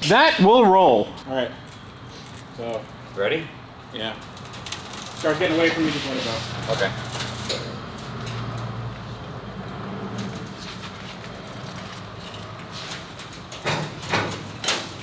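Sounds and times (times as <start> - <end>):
car rolling on a trailer: 4.1 - 15.0.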